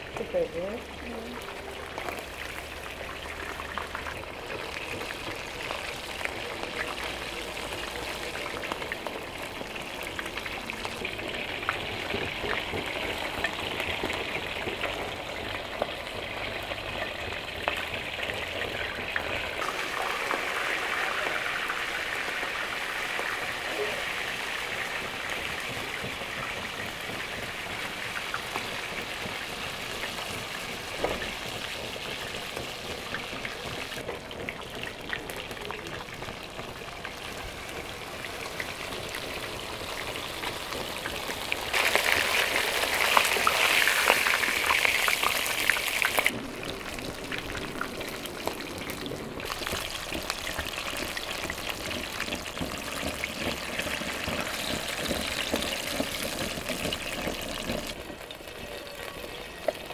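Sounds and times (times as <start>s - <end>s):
fish sizzling in hot oil: 0.0s - 59.9s.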